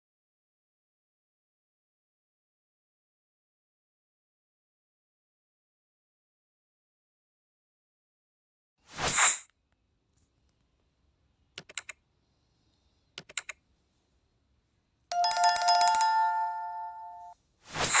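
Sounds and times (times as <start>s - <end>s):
swish: 8.9s - 9.5s, 17.6s - 18.0s
mouse clicks: 11.6s - 12.0s, 13.2s - 13.6s
notification bell ringing: 15.1s - 17.4s.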